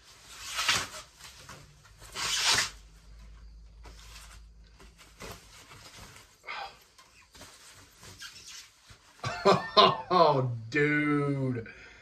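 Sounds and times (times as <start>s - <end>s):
foam bag rustling: 0.0s - 9.6s.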